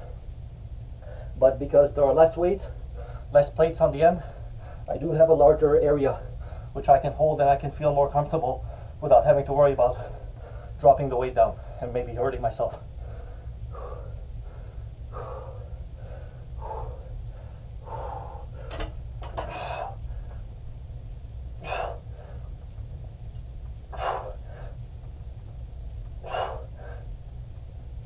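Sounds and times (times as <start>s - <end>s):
man breathing hard: 0.9s - 1.4s, 2.6s - 3.4s, 4.1s - 4.9s, 6.1s - 6.8s, 8.6s - 9.0s, 9.9s - 10.8s, 12.8s - 20.8s, 21.5s - 22.9s, 23.7s - 25.3s, 26.1s - 27.7s.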